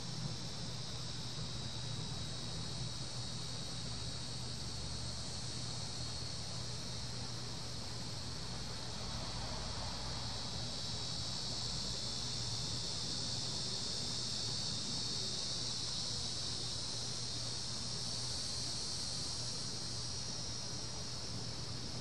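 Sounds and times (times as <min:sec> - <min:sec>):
cicadas buzzing: 0:00.0 - 0:22.0.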